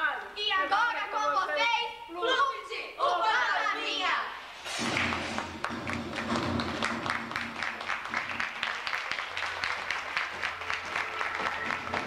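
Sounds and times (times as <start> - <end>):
audience clapping: 4.8 - 12.0.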